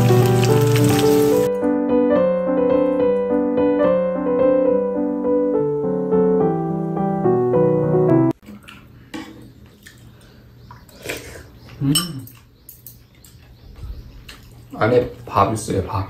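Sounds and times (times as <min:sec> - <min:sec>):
solo piano melody: 0:00.0 - 0:08.4.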